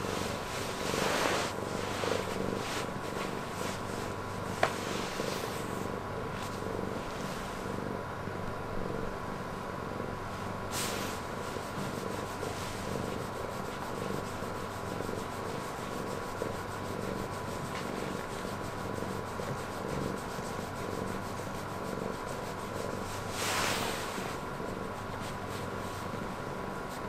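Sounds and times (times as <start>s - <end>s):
hand rubbing fur: 0.0s - 7.8s, 10.2s - 27.0s
cat purring: 0.0s - 27.0s.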